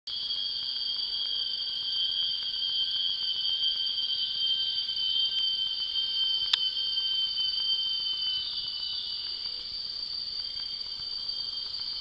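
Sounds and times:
insect chorus drone: 0:00.1 - 0:12.0
faint ticks: 0:10.4 - 0:12.0.

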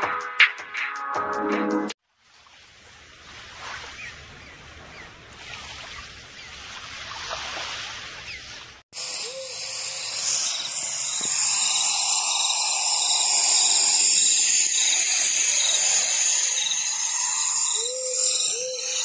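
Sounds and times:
insects chirping: 0:09.0 - 0:19.0.

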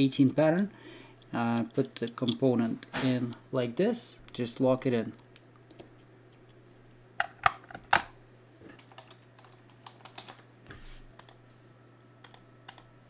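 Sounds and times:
faint steady hum: 0:00.0 - 0:13.0
keyboard typing: 0:08.8 - 0:10.4, 0:11.2 - 0:11.4, 0:12.2 - 0:12.9.

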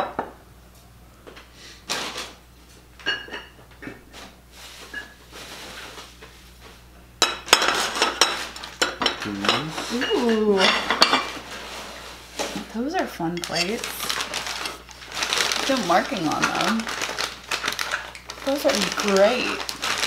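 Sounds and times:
plates clinking together: 0:07.2 - 0:11.3, 0:13.4 - 0:13.9.

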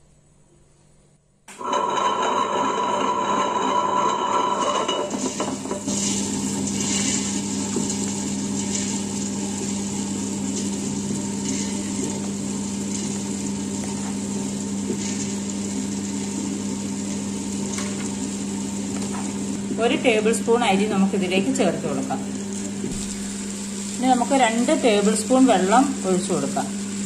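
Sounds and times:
wet grinder motor hum: 0:01.5 - 0:27.0
lentils being poured: 0:05.8 - 0:18.4.

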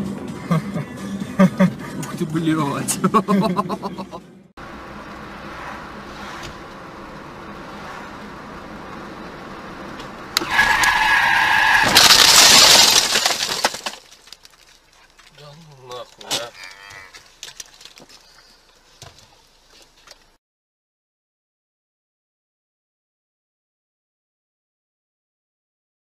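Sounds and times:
car running: 0:00.0 - 0:20.4
loud squeal: 0:10.4 - 0:12.0
loud crash on car: 0:10.4 - 0:14.3
cow mooing: 0:16.4 - 0:17.2.

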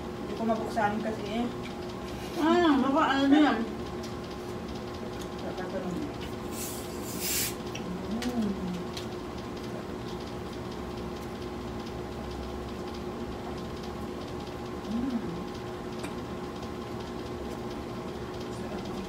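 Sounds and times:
steady background hum: 0:00.0 - 0:19.0
faint eating clicks: 0:03.9 - 0:06.4, 0:07.7 - 0:19.0
person humming: 0:14.9 - 0:15.4.

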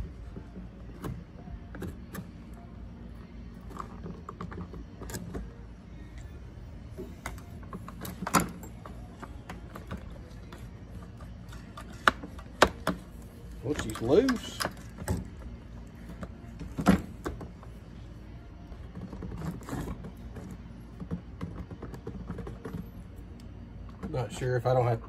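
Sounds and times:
screwdriver clicking and scraping metal: 0:03.6 - 0:05.5, 0:07.2 - 0:15.4.

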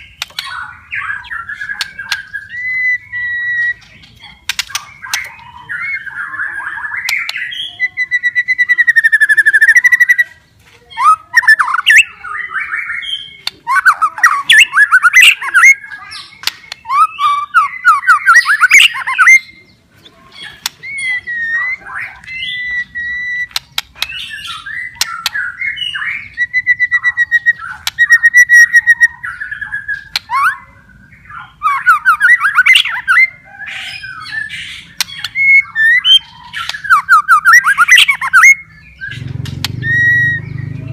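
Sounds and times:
songbird singing whistles and trills: 0:00.0 - 0:40.9.

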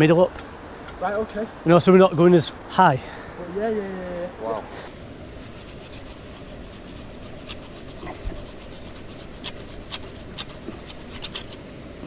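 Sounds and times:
knife sawing through rope: 0:05.4 - 0:11.6.

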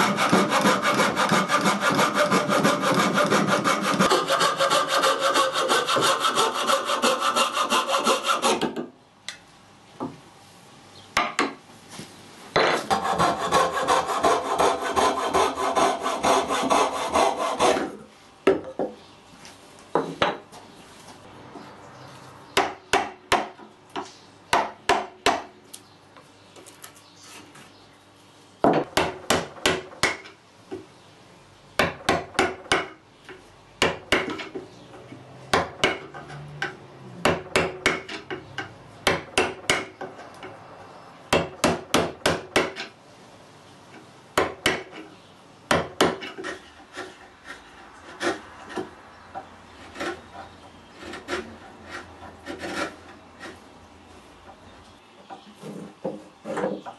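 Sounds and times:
coping saw cutting wood: 0:00.0 - 0:08.6, 0:12.9 - 0:18.0, 0:49.8 - 0:53.6
chisel paring wood: 0:00.0 - 0:08.9, 0:22.6 - 0:23.6, 0:24.5 - 0:25.5, 0:28.8 - 0:30.3, 0:35.5 - 0:40.1, 0:41.3 - 0:42.9, 0:44.4 - 0:45.1, 0:45.7 - 0:53.6.

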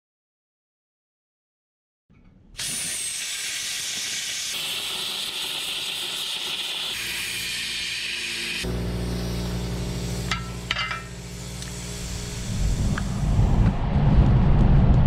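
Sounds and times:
plasma cutter hissing: 0:02.6 - 0:13.5.

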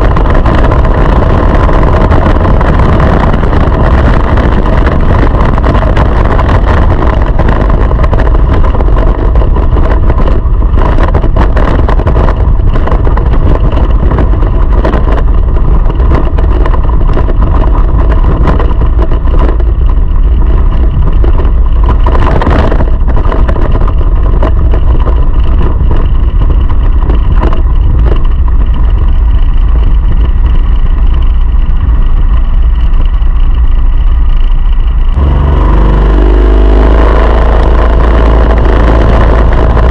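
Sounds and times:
go-kart engine at high revs: 0:35.1 - 0:39.9.

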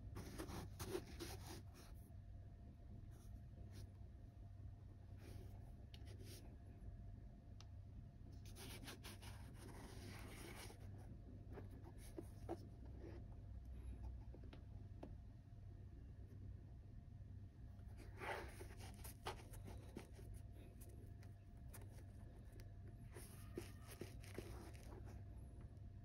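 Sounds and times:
low steady hum: 0:00.0 - 0:26.0
leather sneaker rustling in hands: 0:00.2 - 0:01.4, 0:17.8 - 0:25.6.

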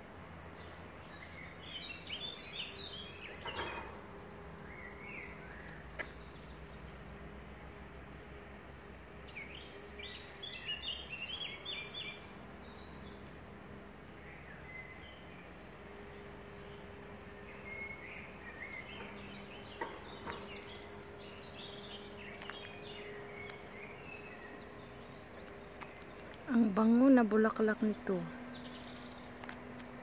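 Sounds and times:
songbirds chirping: 0:00.0 - 0:30.0.

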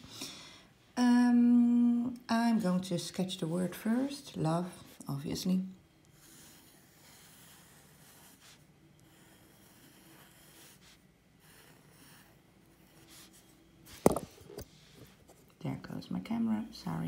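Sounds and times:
pencil scratching on paper: 0:06.0 - 0:14.0.

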